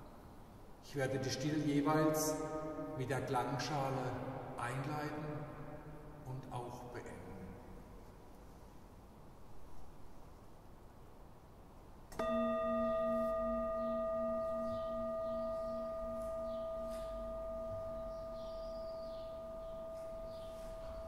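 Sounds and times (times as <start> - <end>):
singing bowl ringing: 12.2 - 21.0.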